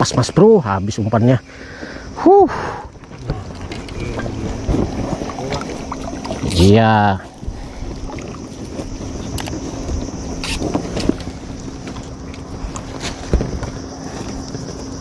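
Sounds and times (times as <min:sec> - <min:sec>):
faint low hum: 0:00.0 - 0:15.0
wind buffeting microphone: 0:02.9 - 0:15.0
fishing tackle clicks and knocks: 0:03.0 - 0:06.5.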